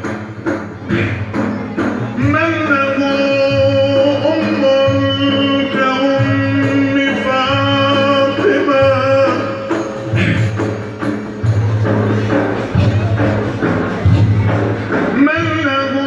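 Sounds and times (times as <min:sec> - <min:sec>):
frame drum: 0:00.0 - 0:16.0
low instrumental accompaniment: 0:00.0 - 0:16.0
man singing ornamented line: 0:02.1 - 0:10.8, 0:15.1 - 0:16.0.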